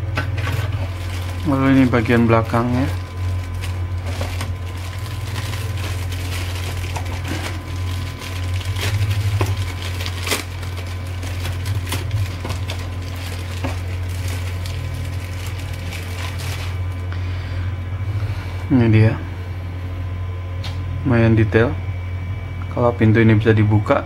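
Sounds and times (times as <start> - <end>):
steady low hum: 0.0 - 24.0
plastic bags crinkling: 0.4 - 17.1.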